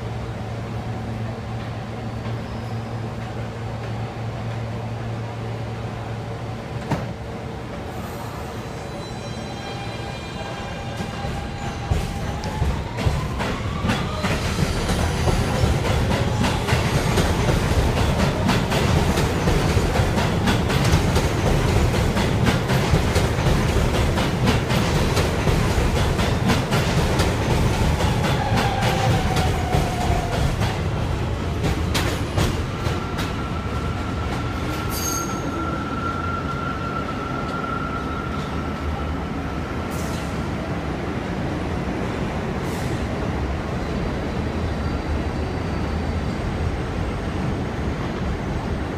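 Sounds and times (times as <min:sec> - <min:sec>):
train wheels rumbling on rail: 0:00.0 - 0:48.9
wheel squeal: 0:34.8 - 0:38.2.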